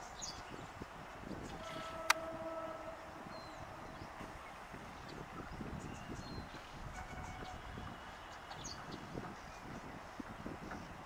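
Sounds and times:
low outdoor background noise: 0.0 - 11.0
horn-like pitched tone: 1.6 - 3.8.

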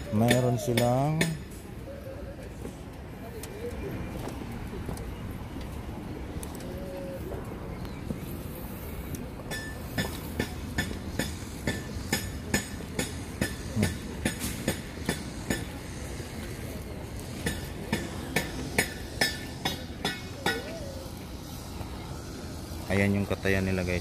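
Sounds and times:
hammer blows on metal: 0.0 - 1.6, 9.5 - 16.0.

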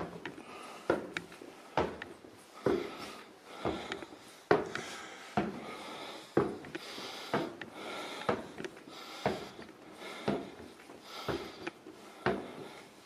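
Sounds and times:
footsteps on wooden stairs: 0.0 - 13.0.

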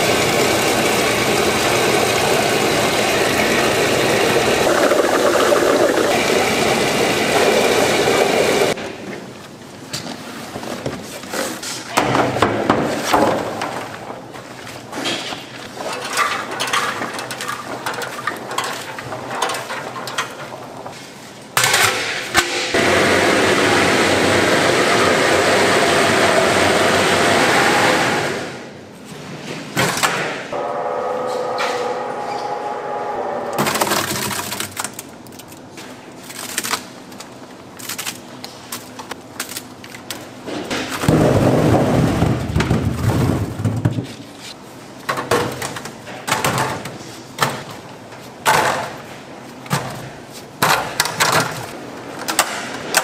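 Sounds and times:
vegetables clattering against metal: 14.9 - 21.1, 33.6 - 44.4.

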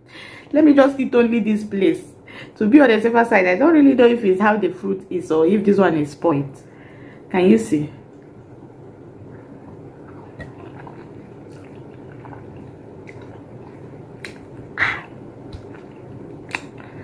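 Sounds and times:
faint background hum: 0.0 - 17.0
wet mouth sound: 9.3 - 17.0
lip smacks and tongue clicks: 10.0 - 17.0.

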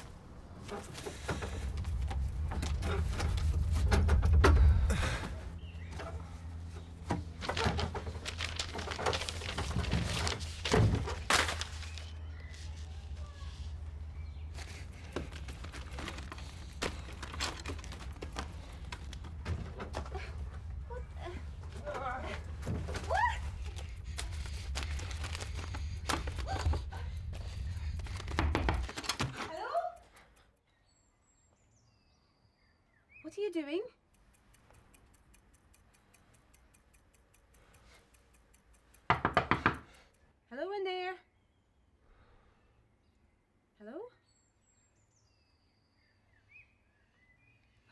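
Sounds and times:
quick steady ticking: 34.0 - 40.4
fist knocking on door: 39.1 - 39.9.

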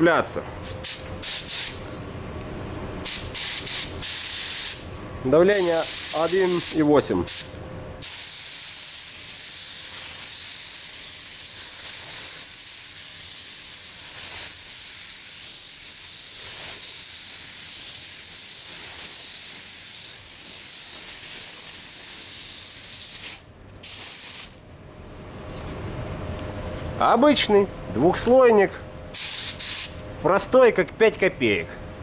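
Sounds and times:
spray gun hissing: 3.1 - 4.8, 5.6 - 7.4, 8.0 - 24.5, 29.2 - 29.9.

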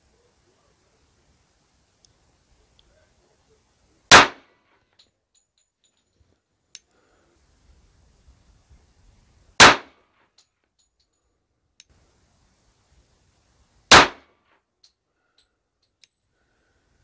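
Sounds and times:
faint clicks: 2.0 - 3.0
pistol shots: 4.1 - 4.5, 9.6 - 9.9, 13.9 - 14.2.

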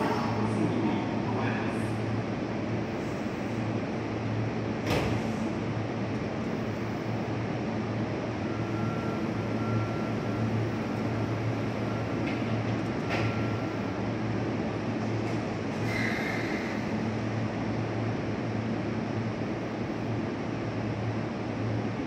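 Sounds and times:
electric train equipment humming: 2.0 - 22.0.

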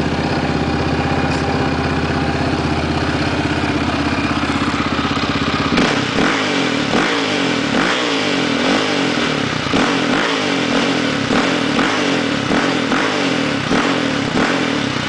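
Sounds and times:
engine revving in throttle blips: 5.7 - 15.0.

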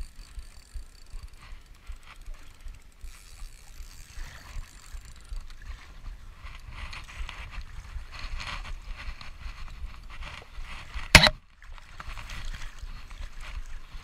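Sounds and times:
wind rumble on microphone: 5.2 - 14.0.

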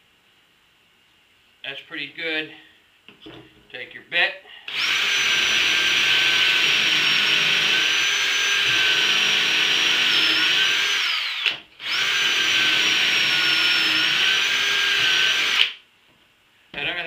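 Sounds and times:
cordless drill motor whine: 4.7 - 15.7.

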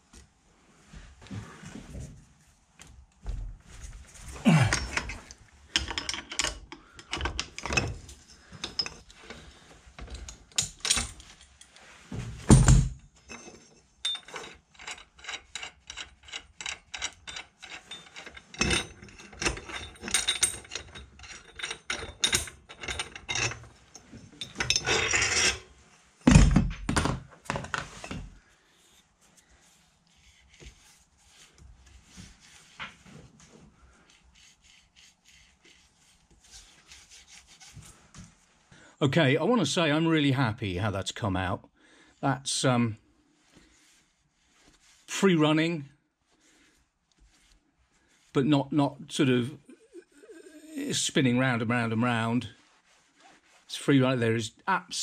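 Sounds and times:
metal clicking and knocking: 4.6 - 9.4, 12.5 - 25.6
metal scraping: 13.3 - 26.2.

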